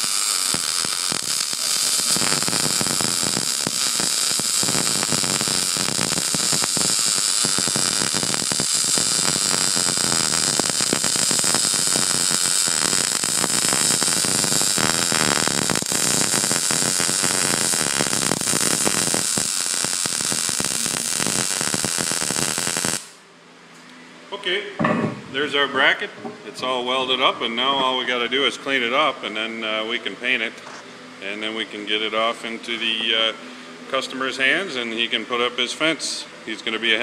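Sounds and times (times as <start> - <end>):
welding arc crackling hiss: 0.0 - 23.2.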